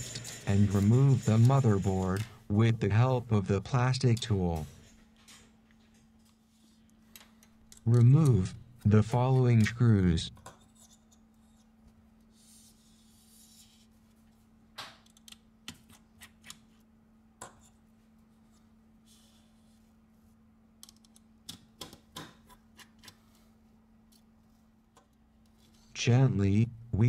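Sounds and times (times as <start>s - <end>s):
low steady hum: 0.0s - 15.2s, 23.2s - 27.0s.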